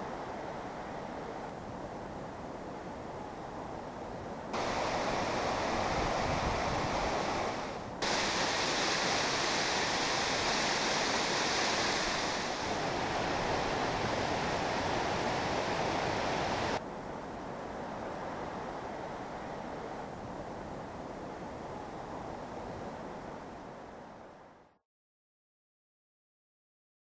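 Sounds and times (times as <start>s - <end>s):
waterfall: 4.6s - 24.8s.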